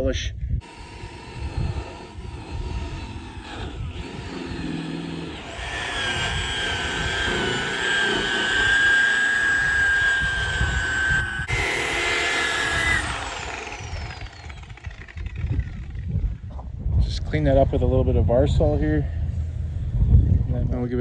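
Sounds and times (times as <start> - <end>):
rotary polisher whine: 0.6 - 16.0
cordless drill motor whine: 0.6 - 16.4.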